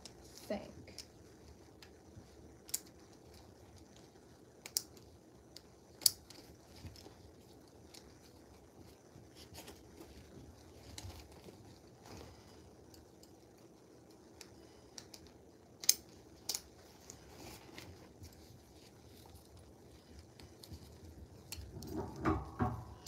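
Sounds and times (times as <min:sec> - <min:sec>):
strap rustles: 0:16.1 - 0:23.0.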